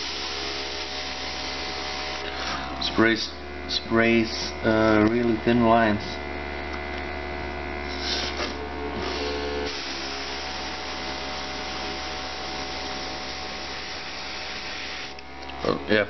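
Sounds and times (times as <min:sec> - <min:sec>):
airbrush spray hissing: 0:00.0 - 0:02.6, 0:07.8 - 0:15.2
compressor humming: 0:00.0 - 0:16.0.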